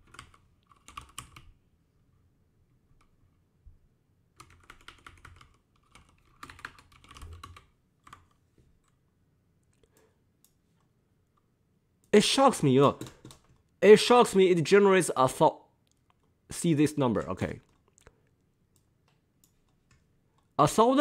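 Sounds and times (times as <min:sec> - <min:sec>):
computer keyboard typing: 0:00.0 - 0:01.6, 0:04.4 - 0:09.0, 0:12.8 - 0:13.7.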